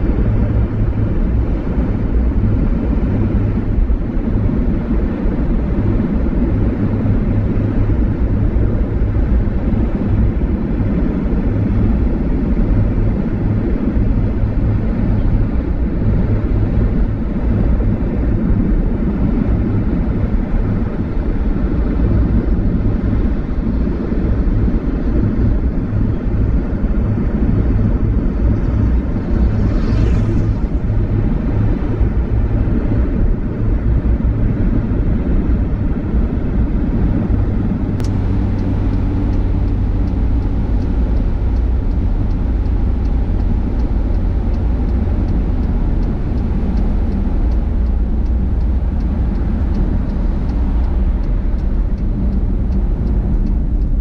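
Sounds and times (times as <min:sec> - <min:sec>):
car driving on highway rumble: 0:00.0 - 0:54.0
brief whoosh: 0:28.6 - 0:31.7
sharp click: 0:38.0 - 0:38.7.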